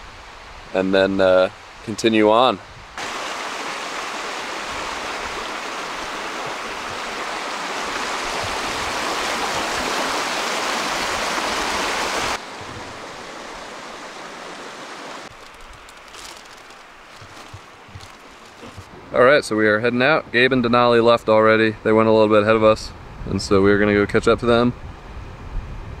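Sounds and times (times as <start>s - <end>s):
running water rushing: 0.0s - 19.6s
wash of noise: 3.0s - 18.8s.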